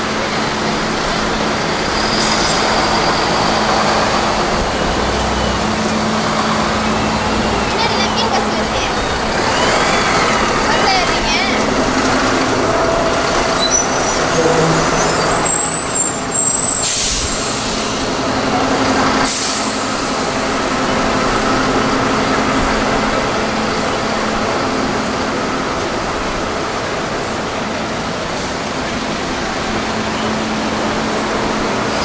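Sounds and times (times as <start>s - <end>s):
buses idling with diesel drone: 0.0s - 32.0s
air brake hiss: 16.4s - 18.3s, 19.2s - 20.6s.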